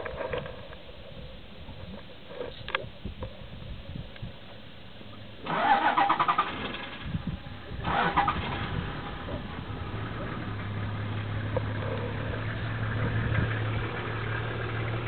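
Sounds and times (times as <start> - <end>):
engine starter cranking: 5.4 - 9.3.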